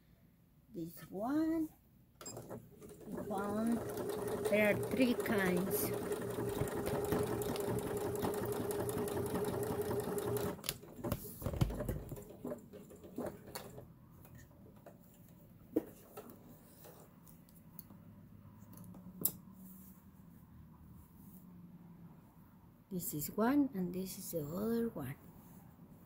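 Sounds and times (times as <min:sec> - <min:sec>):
sewing machine stitching: 0:02.2 - 0:13.9.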